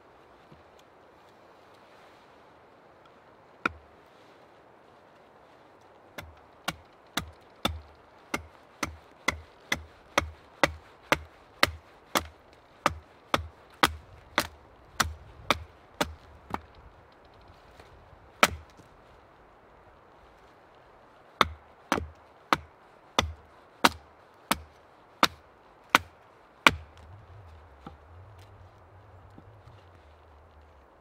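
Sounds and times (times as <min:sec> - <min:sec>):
hatchet chopping wood: 0:06.2 - 0:16.7, 0:18.4 - 0:18.8, 0:21.4 - 0:27.0.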